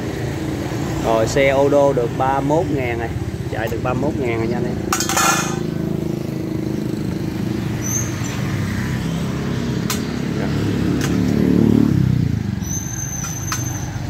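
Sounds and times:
sharp clicks: 9.8 - 10.1.

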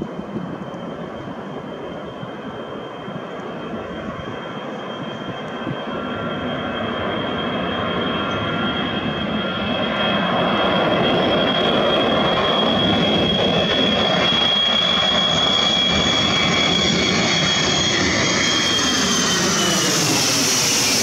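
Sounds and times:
jet engines at takeoff power: 0.0 - 21.0
high whine: 10.4 - 21.0.

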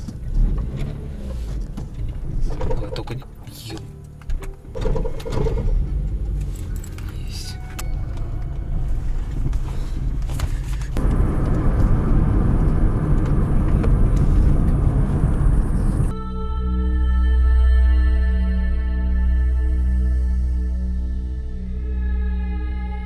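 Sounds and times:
car engine rumble: 0.0 - 16.2
tyre road noise: 0.0 - 16.2.

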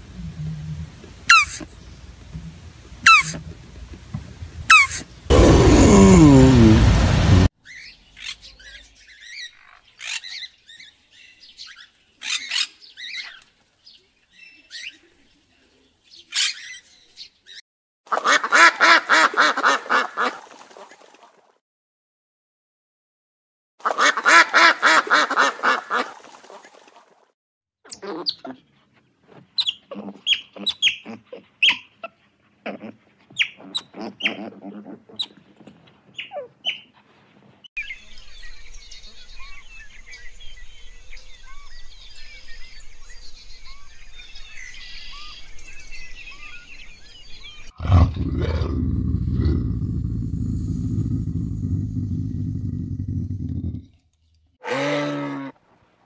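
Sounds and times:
loud low sound: 5.3 - 7.5
duck honking: 23.8 - 26.0.

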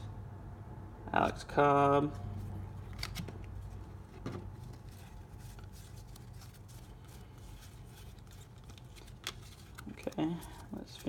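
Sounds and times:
low steady hum: 0.0 - 11.0
trading cards sliding and clicking: 2.8 - 11.0.

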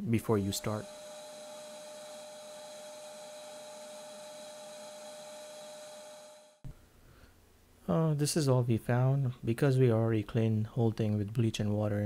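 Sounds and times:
shop vacuum motor whine: 0.0 - 6.6.

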